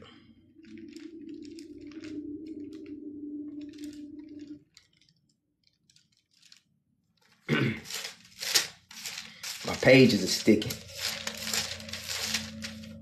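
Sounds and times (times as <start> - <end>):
pages rustling: 0.4 - 13.0.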